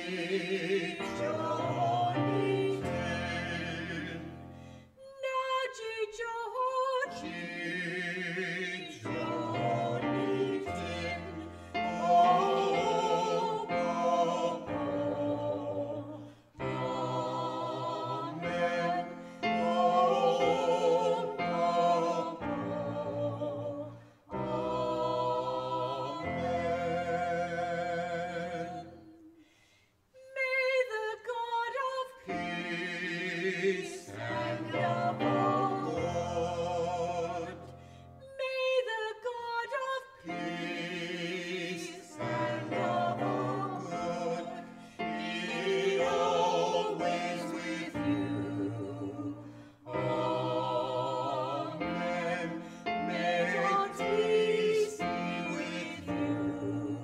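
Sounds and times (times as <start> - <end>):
choir singing slow piece: 0.0 - 29.7, 30.3 - 57.0.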